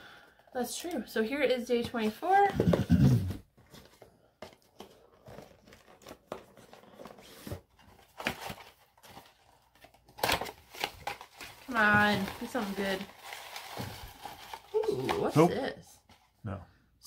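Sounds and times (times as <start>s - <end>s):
packaging rustling and tearing: 3.6s - 15.5s.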